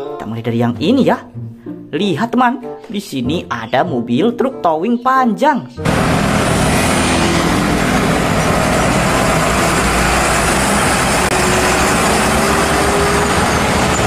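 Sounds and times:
road noise: 5.8s - 14.0s
truck diesel engine passing: 5.8s - 14.0s.

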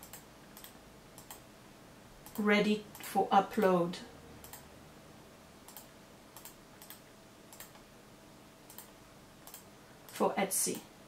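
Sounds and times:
computer mouse and keyboard clicks: 0.0s - 1.4s, 2.2s - 3.1s, 4.4s - 4.6s, 5.7s - 7.9s, 8.7s - 10.9s.

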